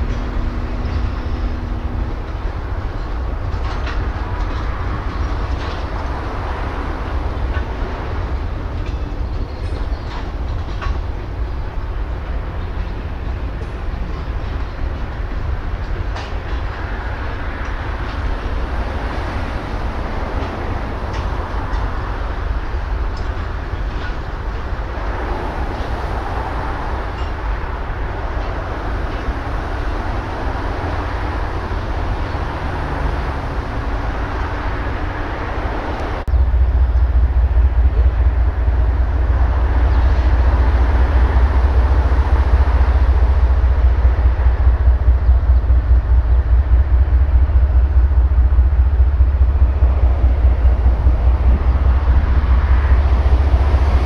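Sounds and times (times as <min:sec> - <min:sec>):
diesel locomotive engines rumbling: 0:00.0 - 0:54.0
deep pulsing engine throb: 0:35.6 - 0:54.0.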